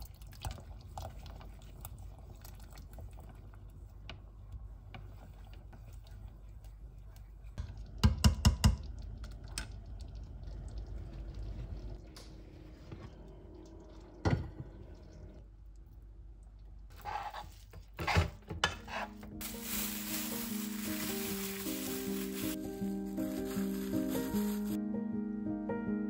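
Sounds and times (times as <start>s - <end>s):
soft piano music: 19.2s - 26.0s.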